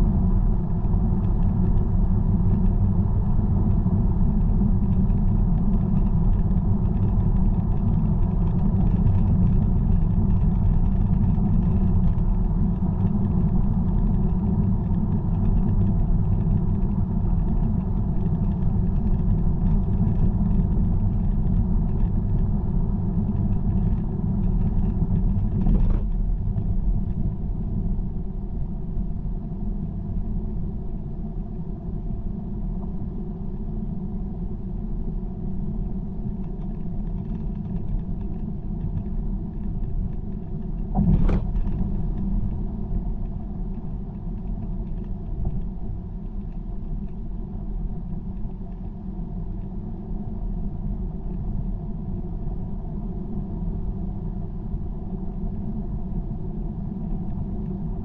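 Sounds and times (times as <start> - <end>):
car tyres and engine rumble: 0.0 - 58.0
brief knock: 41.0 - 41.7.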